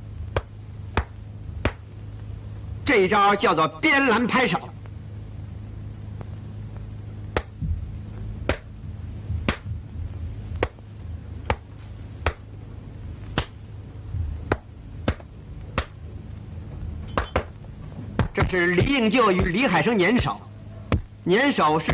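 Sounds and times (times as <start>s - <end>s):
low soundtrack hum: 0.0s - 21.9s
hands and forearms slapping: 0.3s - 1.8s, 7.3s - 7.6s, 8.4s - 8.7s, 9.4s - 9.7s, 10.6s - 10.8s, 11.4s - 12.4s, 13.4s - 13.6s, 14.5s - 16.0s, 18.2s - 18.5s.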